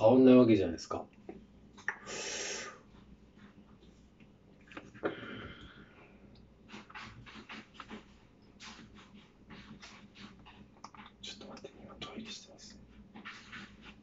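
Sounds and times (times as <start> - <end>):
cat scratching litter: 6.6 - 14.0.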